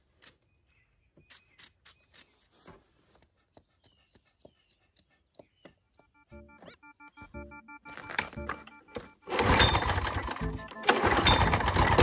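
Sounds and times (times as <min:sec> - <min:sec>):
faint bird chirps: 0:00.2 - 0:07.6
wire brush scraping: 0:01.3 - 0:03.0.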